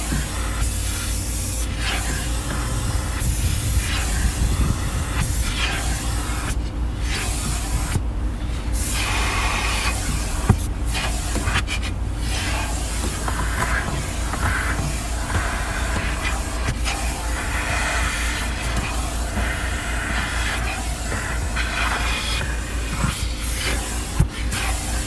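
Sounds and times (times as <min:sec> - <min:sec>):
low road rumble: 0:00.0 - 0:25.0
wind buffeting microphone: 0:02.7 - 0:06.0.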